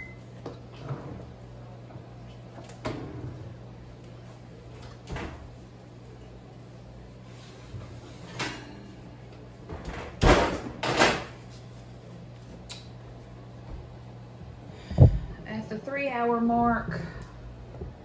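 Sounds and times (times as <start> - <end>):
oven door opening and shutting: 2.4 - 4.0, 4.7 - 5.6, 9.6 - 11.5.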